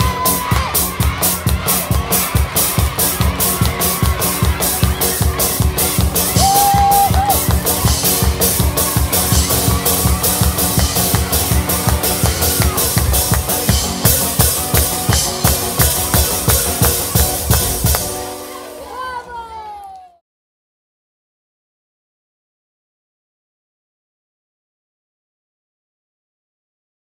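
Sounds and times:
drum kit fast beat: 0.0s - 18.5s
live band playing: 0.0s - 19.8s.

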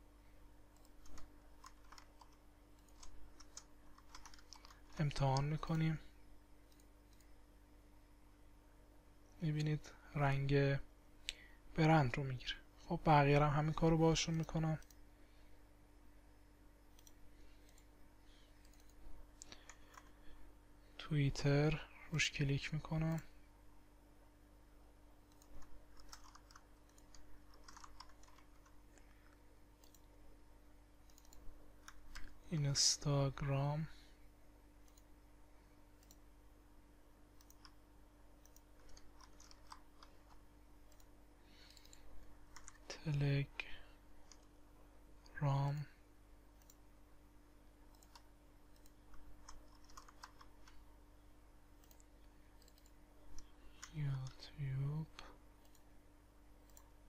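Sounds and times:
low steady hum: 0.0s - 57.0s
keyboard keystrokes: 0.8s - 5.6s, 25.3s - 28.8s, 48.8s - 50.8s
mouse clicks: 18.6s - 20.1s, 31.1s - 32.3s, 51.8s - 54.0s.

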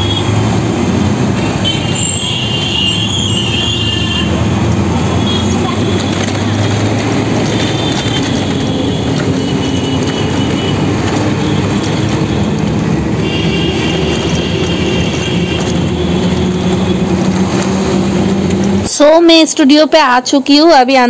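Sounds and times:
bus engine drone: 0.0s - 20.0s
road noise: 0.0s - 21.0s.

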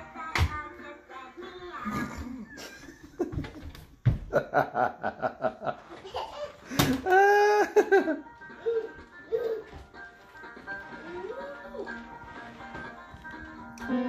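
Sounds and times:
person laughing: 1.8s - 3.7s, 6.7s - 9.5s.

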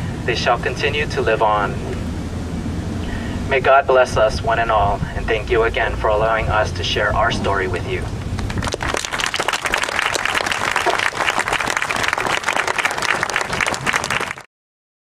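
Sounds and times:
audience applauding: 8.2s - 14.5s.

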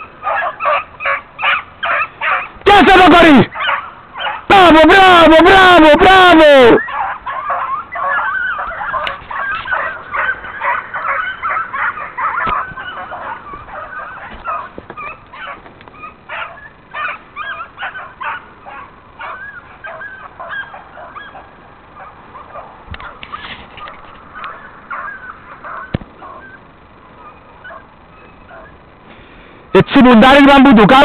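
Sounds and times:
hounds baying and yelping: 0.0s - 29.0s.

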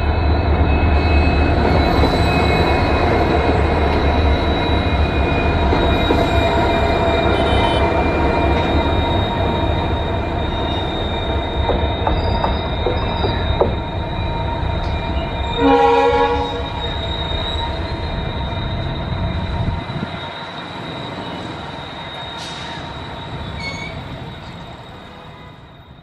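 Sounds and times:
diesel locomotive engines rumbling: 0.0s - 26.0s
locomotive horn blast: 7.3s - 7.9s, 15.6s - 16.8s.

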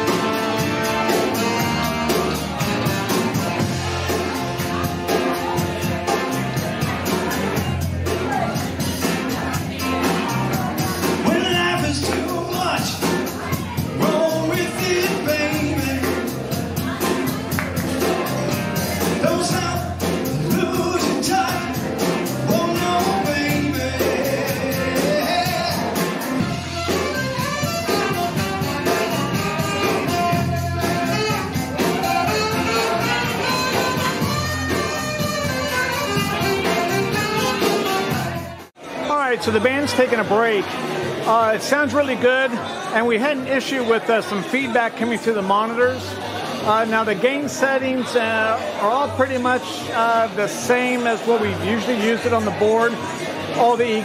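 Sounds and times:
steady drum beat: 0.0s - 38.7s
live band playing: 0.0s - 54.0s
lead singer vocals: 19.2s - 26.2s.

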